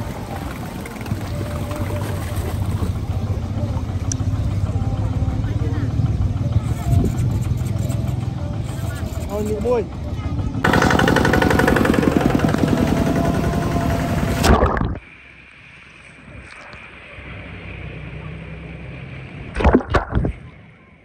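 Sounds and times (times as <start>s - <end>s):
small engine running: 0.0s - 14.5s.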